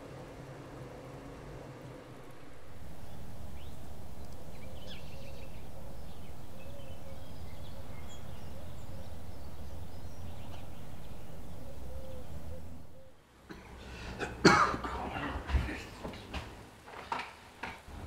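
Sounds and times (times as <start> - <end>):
low outdoor rumble: 0.0 - 18.0
faint bird chirps: 2.2 - 13.2.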